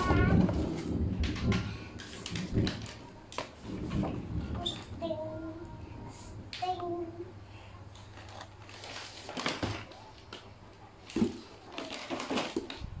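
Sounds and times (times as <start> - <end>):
packaging rustling and scraping: 0.0 - 4.9, 7.9 - 13.0.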